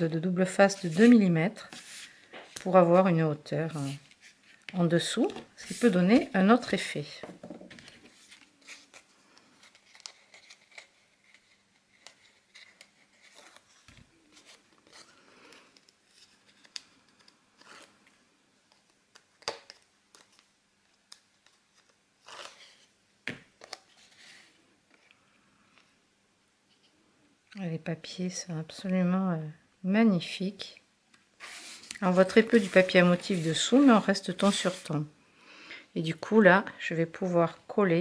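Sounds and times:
card and tape crinkling: 7.7s - 18.0s.

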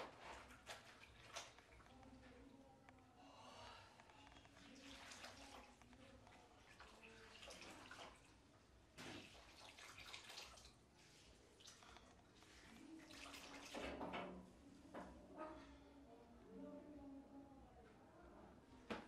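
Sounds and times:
water sloshing and dripping: 0.0s - 2.7s, 4.0s - 15.1s.

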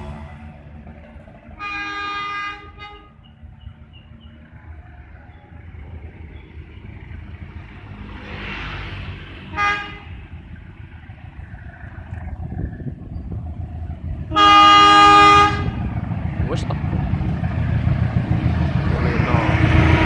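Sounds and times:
locomotive horn blasts: 1.6s - 3.3s, 9.5s - 10.2s, 14.3s - 15.9s, 19.2s - 20.0s
rushing noise: 5.7s - 20.0s
steady low rumble: 10.0s - 20.0s.

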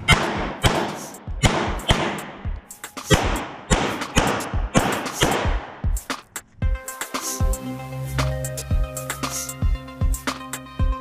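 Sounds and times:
pistol shots echoing indoors: 0.0s - 2.4s, 3.1s - 5.7s.

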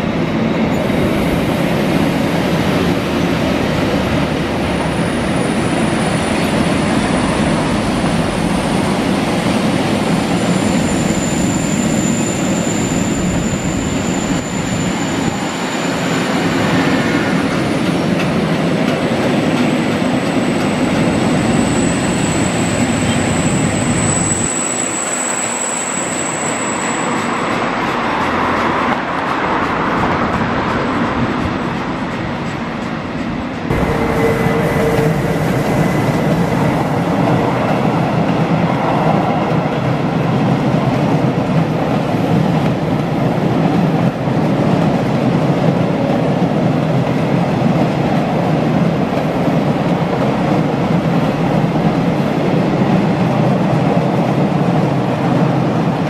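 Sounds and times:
train wheels rolling on rails: 0.0s - 56.0s
high-pitched wheel squeal: 10.3s - 16.9s, 20.7s - 27.8s, 33.7s - 36.2s.

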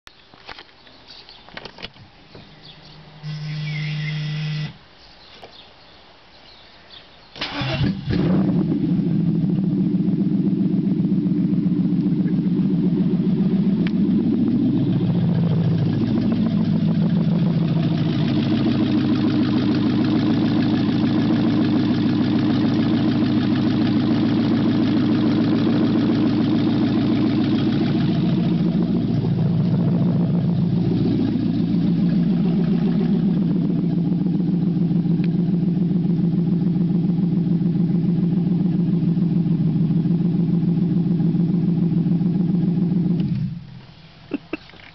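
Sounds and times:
steady hum: 2.3s - 4.9s, 8.2s - 40.2s
engine idling loudly: 8.6s - 43.7s.

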